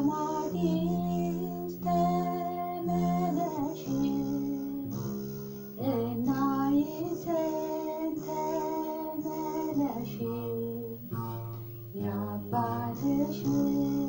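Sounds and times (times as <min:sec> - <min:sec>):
woman singing: 0:00.0 - 0:05.1, 0:05.8 - 0:14.0.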